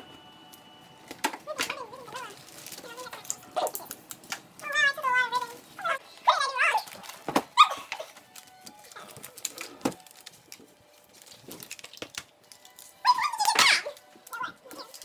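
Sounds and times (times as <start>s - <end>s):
wrapping paper rustling: 0.4s - 15.0s
tape and hand clicks: 6.8s - 15.0s.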